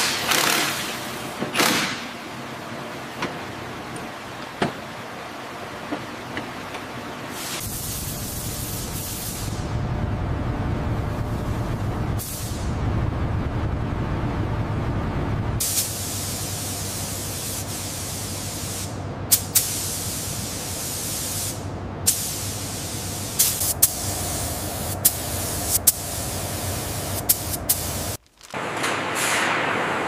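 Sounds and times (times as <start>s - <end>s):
loud steady hiss: 7.3s - 9.7s, 15.6s - 30.0s
low machine rumble: 7.6s - 15.6s, 21.6s - 28.2s.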